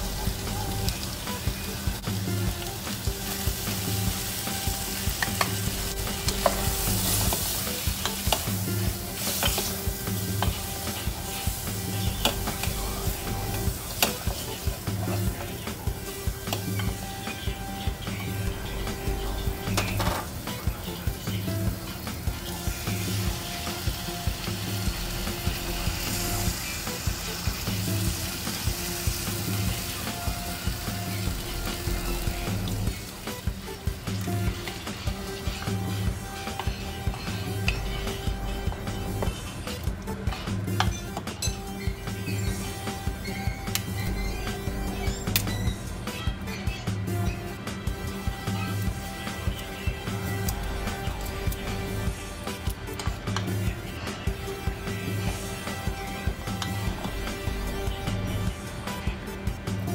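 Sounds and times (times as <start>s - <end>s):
meat sizzling in a pan: 0.0s - 39.8s
background music with steady beat: 0.0s - 59.9s.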